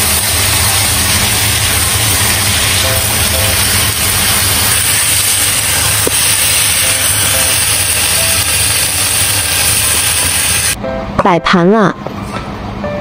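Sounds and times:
food sizzling in a pan: 0.0 - 10.8.

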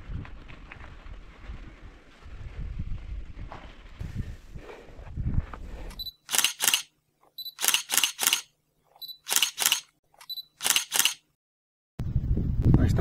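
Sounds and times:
wind rumbling on microphone: 0.0 - 6.1, 12.0 - 13.0
camera shutter beep and clicks: 5.9 - 11.3.

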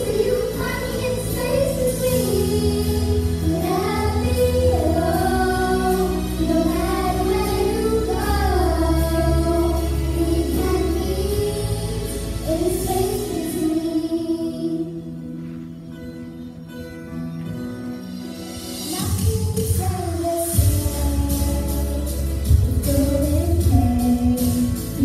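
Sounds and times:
girls singing together: 0.0 - 15.0.

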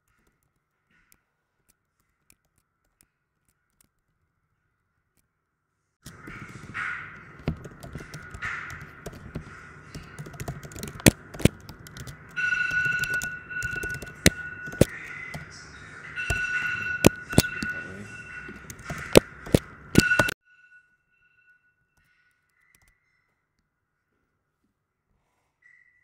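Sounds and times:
computer keyboard keys clicking: 6.0 - 15.6, 16.3 - 20.4
steady high tone: 6.4 - 21.7.

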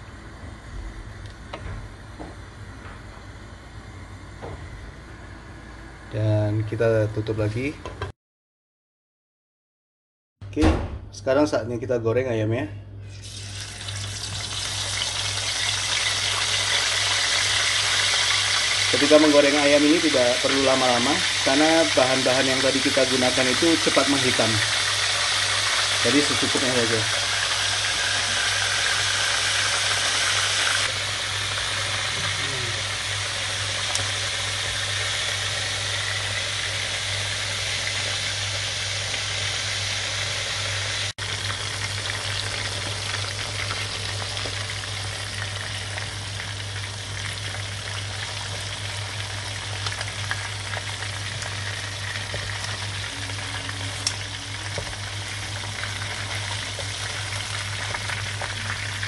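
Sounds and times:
chicken sizzling in hot oil: 13.1 - 59.0.

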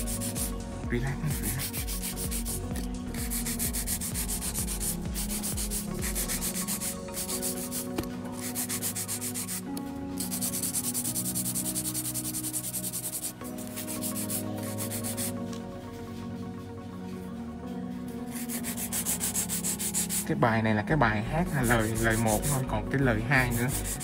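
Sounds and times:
nail file rasping on nail: 0.0 - 0.6, 1.2 - 15.3, 18.3 - 20.2, 21.6 - 22.7, 23.4 - 24.0.

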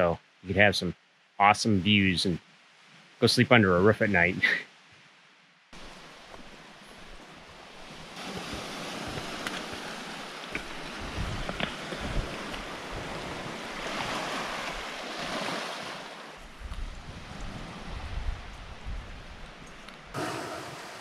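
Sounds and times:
waves lapping on pebble beach: 5.8 - 18.0, 20.2 - 21.0
wind buffeting microphone: 8.2 - 15.5, 16.4 - 21.0.

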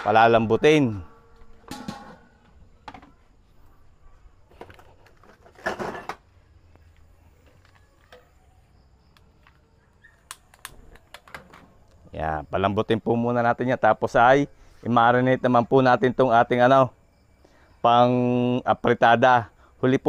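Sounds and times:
metal pot lid clanking on wok: 1.6 - 2.3.

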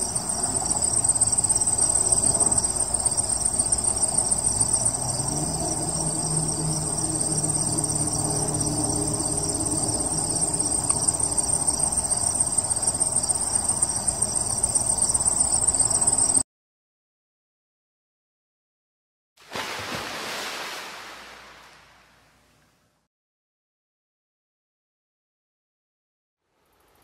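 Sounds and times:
crickets trilling: 0.0 - 16.4, 26.7 - 27.0.

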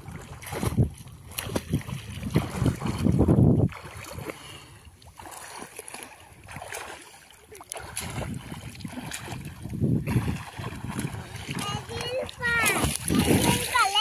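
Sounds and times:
swimmers splashing water: 3.8 - 14.0.

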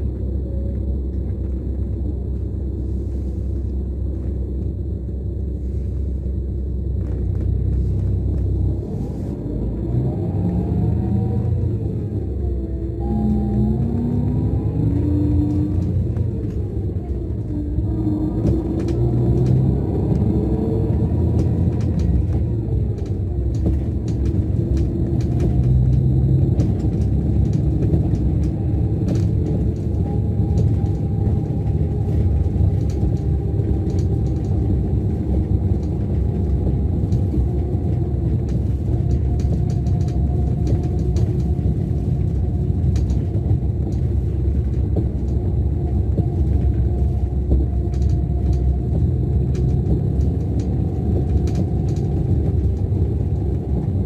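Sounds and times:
bus engine rumbling: 0.0 - 54.0
light clicks and rattles: 15.0 - 54.0.

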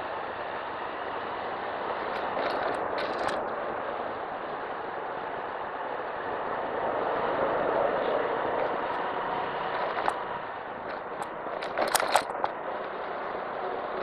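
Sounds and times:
wind and road noise: 0.0 - 14.0
scooter engine running: 1.5 - 3.8, 8.2 - 14.0.

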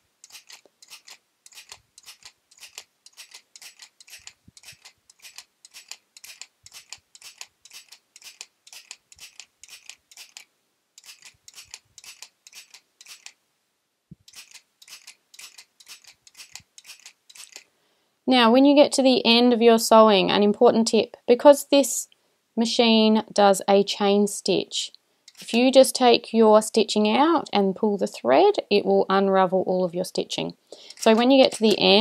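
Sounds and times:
hand stapler sewing machine clicking: 0.2 - 13.4, 30.8 - 32.0.

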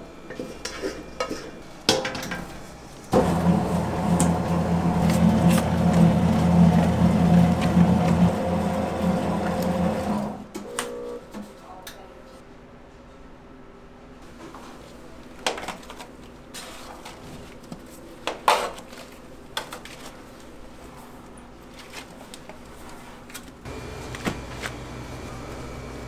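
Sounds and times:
pans and metal utensils clattering: 0.3 - 2.7.

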